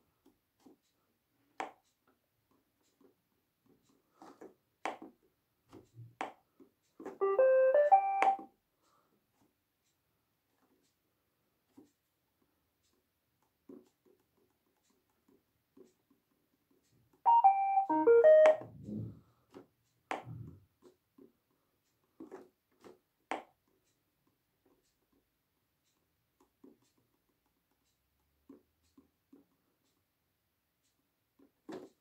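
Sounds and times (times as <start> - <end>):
robot vacuum electronic beeps: 17.3 - 18.8.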